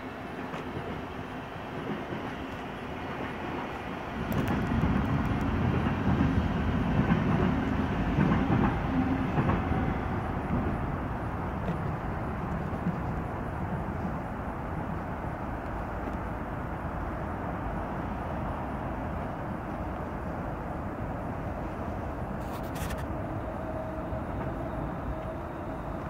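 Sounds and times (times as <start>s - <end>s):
rail vehicle rumble: 0.0s - 26.0s.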